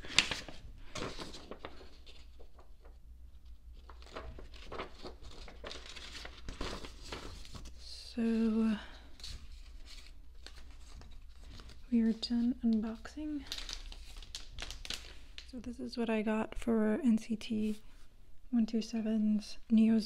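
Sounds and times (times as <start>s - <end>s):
paper crinkling and rustling: 0.0s - 15.5s.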